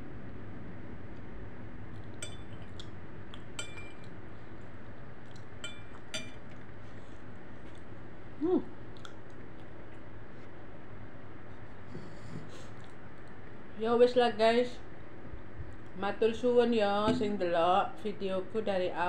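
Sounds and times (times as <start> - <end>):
steady low hum: 0.0 - 19.0
spoon clinking on glass bowl: 2.2 - 2.6, 3.6 - 4.1, 5.6 - 6.4.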